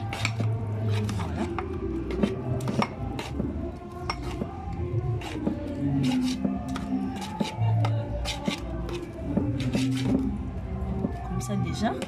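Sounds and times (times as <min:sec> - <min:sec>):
metal spoon scraping cooking pot: 0:00.0 - 0:03.4, 0:05.2 - 0:10.4.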